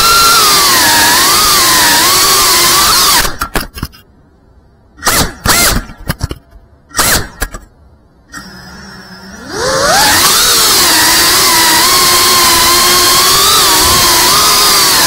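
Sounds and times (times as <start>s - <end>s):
drone motors whining: 0.0s - 3.4s, 8.3s - 15.0s
low steady hum: 3.3s - 10.0s.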